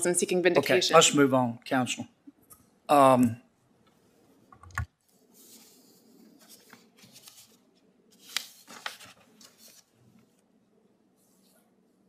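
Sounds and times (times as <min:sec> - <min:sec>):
paper rustling: 0:05.2 - 0:10.4.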